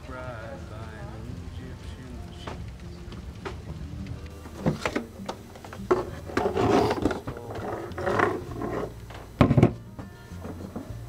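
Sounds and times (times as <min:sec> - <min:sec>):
kitchenware clicks and knocks: 0:04.4 - 0:09.8
scraping rub on wooden counter: 0:05.9 - 0:09.0.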